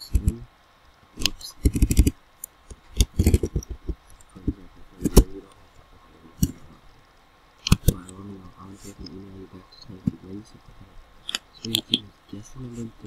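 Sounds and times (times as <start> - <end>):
keyboard and mouse clicking: 1.2 - 4.3, 7.6 - 8.2.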